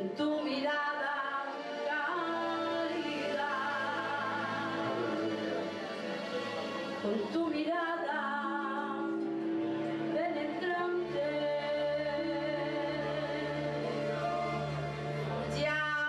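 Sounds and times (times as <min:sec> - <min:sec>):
women singing worship song: 0:00.0 - 0:05.1.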